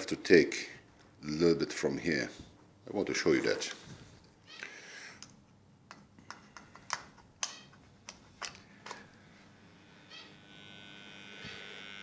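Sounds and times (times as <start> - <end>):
transformer electrical buzz: 9.6 - 12.0.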